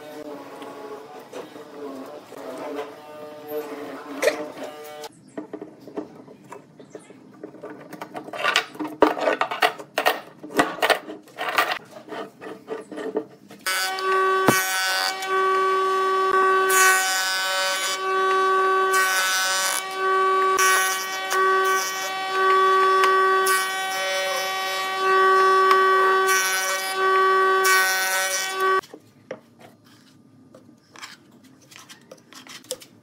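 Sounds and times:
hand tool scraping and clicking: 7.5 - 14.6, 30.9 - 32.9
jointer planing wood hissing: 13.7 - 28.8
jointer running with whining hum: 13.7 - 28.8.

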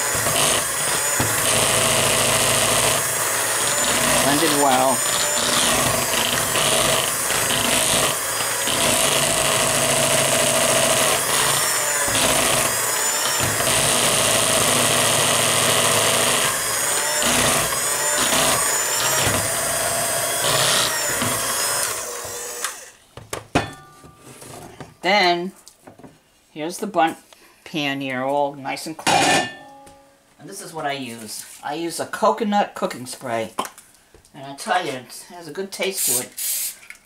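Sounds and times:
electric hand mixer whining: 0.0 - 23.0.

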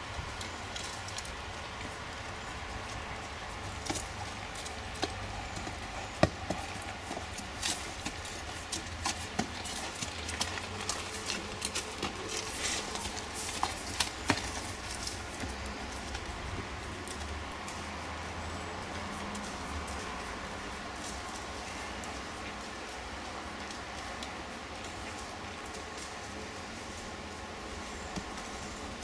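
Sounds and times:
horse hooves on gravel: 0.0 - 29.0.

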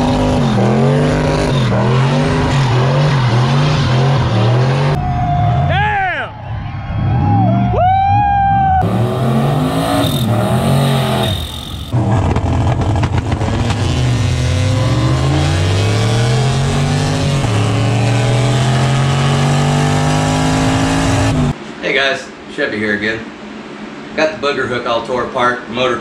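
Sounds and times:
car engine revving: 0.0 - 5.0, 8.8 - 21.6
engine at full throttle: 0.0 - 5.0, 8.8 - 21.6.

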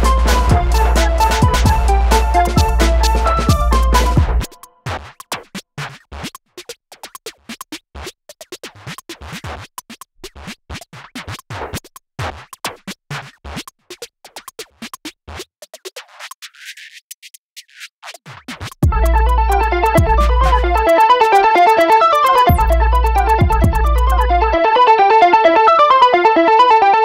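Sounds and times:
background music: 0.0 - 4.8, 18.9 - 27.0.

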